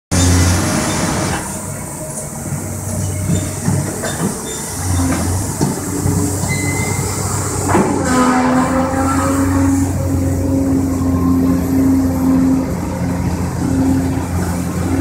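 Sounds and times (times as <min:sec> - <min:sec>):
excavator diesel engine drone: 0:00.1 - 0:15.0
machine knocks and clanks: 0:03.1 - 0:06.6.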